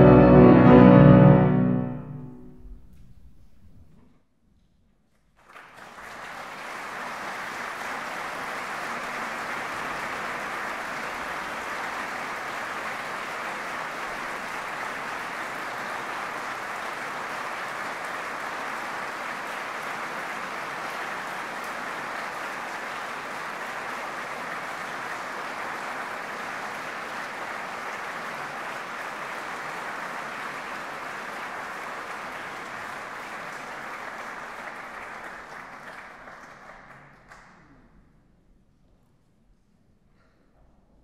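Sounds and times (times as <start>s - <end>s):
audience applauding: 5.4s - 37.7s.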